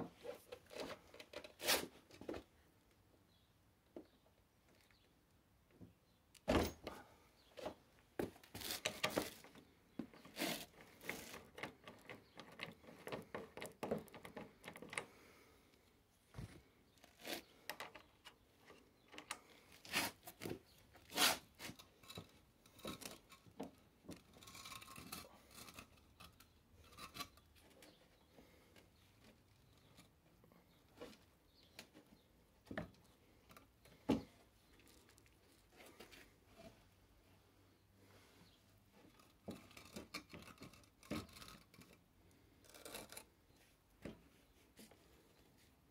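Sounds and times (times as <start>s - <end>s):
handling clicks knocks and scrapes: 7.6s - 15.1s, 16.4s - 36.8s, 38.4s - 45.0s.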